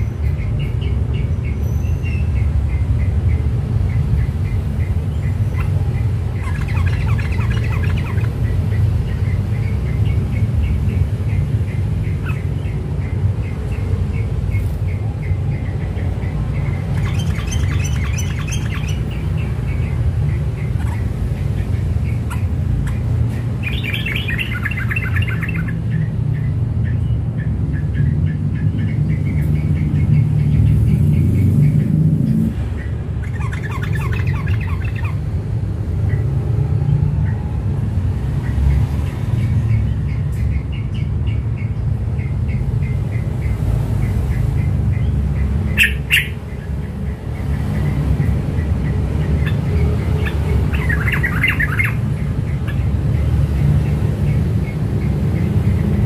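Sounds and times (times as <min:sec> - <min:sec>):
bird chirping high notes: 0:14.5 - 0:20.0.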